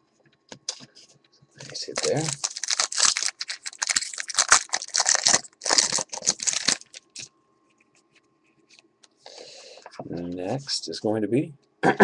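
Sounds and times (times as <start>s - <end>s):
wrapper crinkling and tearing: 1.6s - 7.3s.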